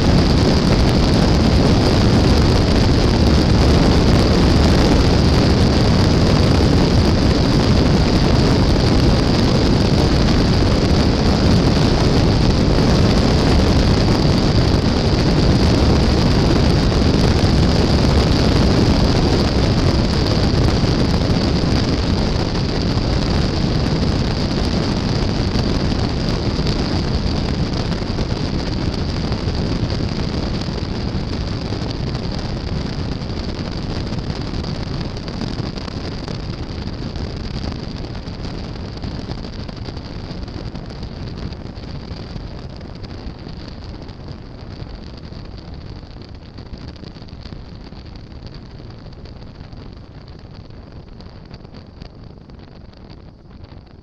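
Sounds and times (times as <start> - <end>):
airplane engine and propeller: 0.0 - 28.4
wind noise on microphone: 0.0 - 54.0.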